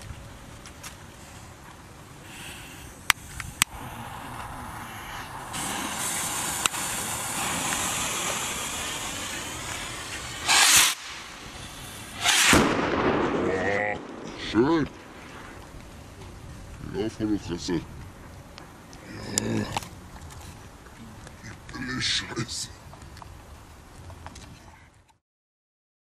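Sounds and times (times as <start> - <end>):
rocket fuses hissing: 2.2 - 16.0
rockets launching with whooshes: 3.2 - 15.8.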